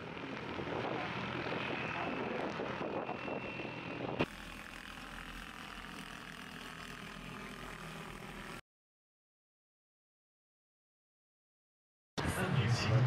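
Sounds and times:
aircraft propellers whirring: 0.0s - 8.6s.

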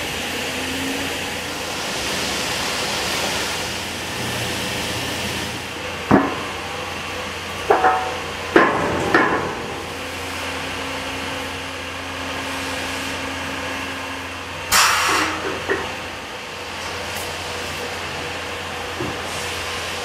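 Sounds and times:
factory machinery hum and hiss: 0.0s - 20.0s
sharp metallic knocks: 7.7s - 9.7s.

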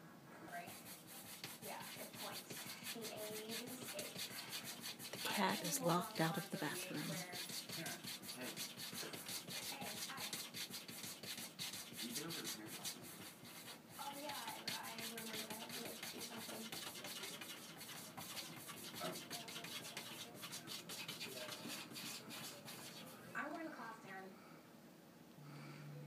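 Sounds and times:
cat scratching at wooden door: 0.8s - 5.3s, 7.1s - 23.1s.

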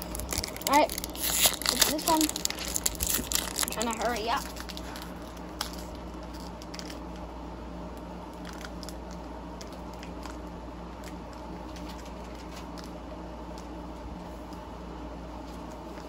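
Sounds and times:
trading cards rustling: 0.0s - 7.2s, 8.4s - 13.0s
wrapper rustling: 0.0s - 7.2s, 8.4s - 12.9s
low hum: 0.0s - 16.0s.

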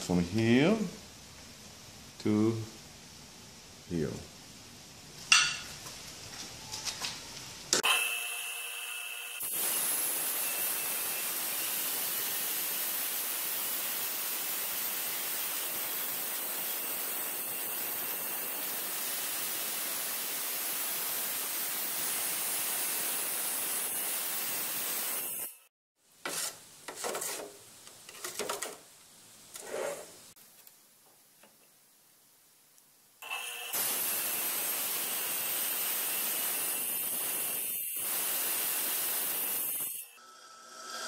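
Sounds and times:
tile saw cutting tile: 7.8s - 20.8s, 33.2s - 41.0s.

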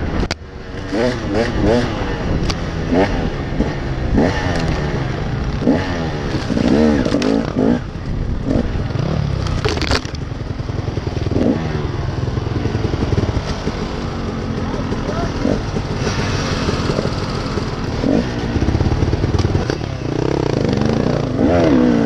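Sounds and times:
dirt bike engine revving: 0.6s - 22.0s
scraping burst: 14.0s - 19.7s.

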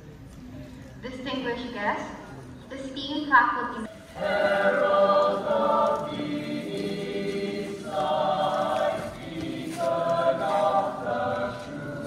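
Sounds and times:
choir singing held chords: 3.9s - 12.0s.

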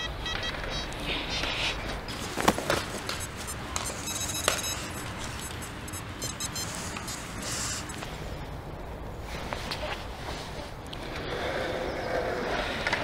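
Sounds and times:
metal detector beeping: 0.0s - 0.9s, 3.1s - 8.0s.

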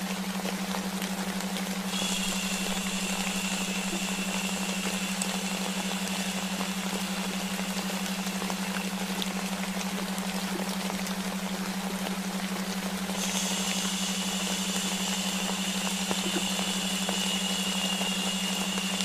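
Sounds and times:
low pulsing hum: 0.0s - 19.0s
white noise hiss: 0.0s - 19.0s
high shushing hiss: 1.9s - 9.6s, 13.2s - 19.0s.

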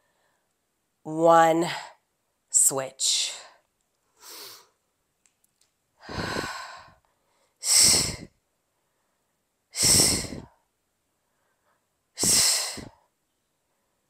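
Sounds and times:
woman exhaling forcefully: 6.0s - 7.0s, 7.6s - 8.3s, 9.8s - 10.5s, 12.2s - 13.0s.

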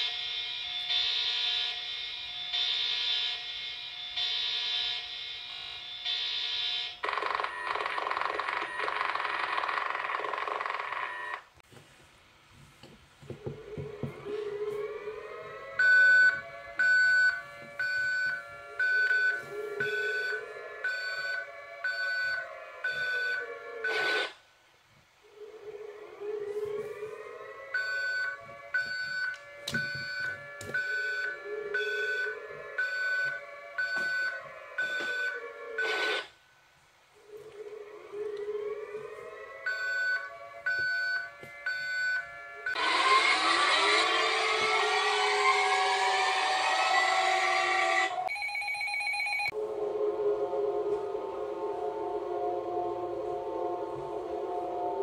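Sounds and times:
sweeping siren tone: 0.0s - 6.9s, 13.4s - 24.3s, 25.2s - 36.3s, 37.2s - 48.4s, 49.1s - 55.0s
harsh alert alarm: 0.0s - 11.4s, 13.6s - 24.4s, 25.4s - 36.3s, 37.6s - 55.0s
steady beep: 15.8s - 24.3s.

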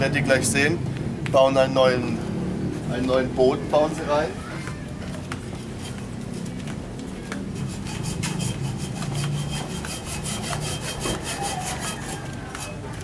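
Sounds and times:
handsaw cutting wood: 7.6s - 12.9s.

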